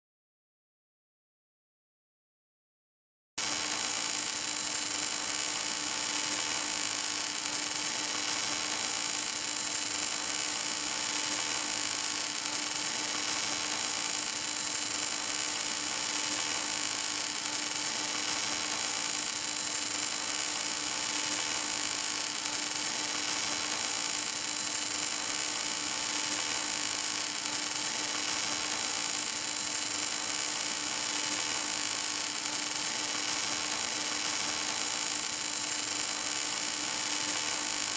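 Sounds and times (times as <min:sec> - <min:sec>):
welding arc hissing and humming: 0:03.4 - 0:37.9.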